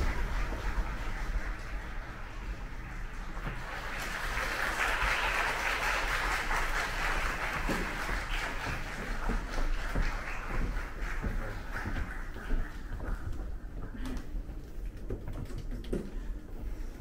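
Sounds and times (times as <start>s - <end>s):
audience applauding: 0.0s - 13.6s.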